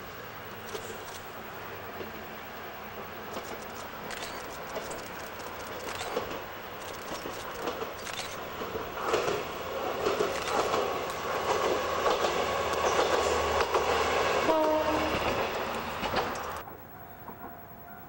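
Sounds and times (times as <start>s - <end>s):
diesel railcar passing: 0.0s - 18.0s
train horn blast: 13.0s - 16.6s.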